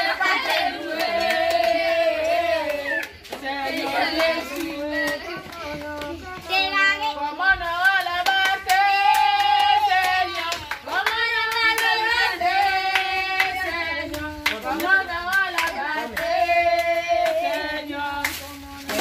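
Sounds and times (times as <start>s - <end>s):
group of voices singing: 0.0s - 19.0s
hand clapping: 7.8s - 19.0s.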